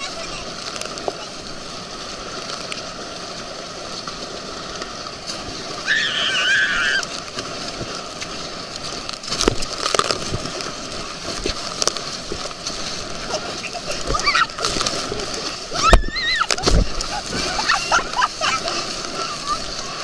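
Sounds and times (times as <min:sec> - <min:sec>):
water rushing and spraying: 0:00.0 - 0:20.0
tube slapping on water: 0:09.1 - 0:19.2.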